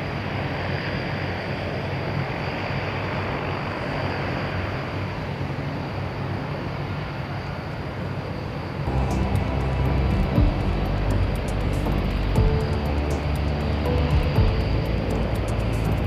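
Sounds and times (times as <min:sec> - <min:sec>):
high jet whine: 0:00.0 - 0:16.0
jet engine roar: 0:00.0 - 0:16.0.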